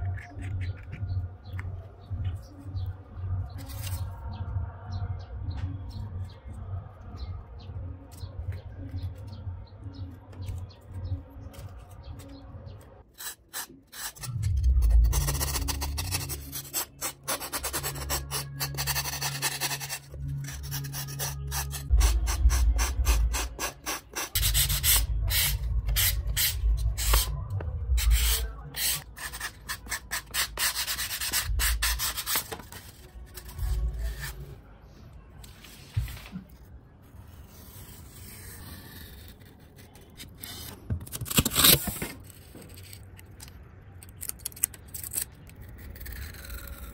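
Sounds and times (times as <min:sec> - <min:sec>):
sandpaper rubbing on foam: 0:13.2 - 0:27.3.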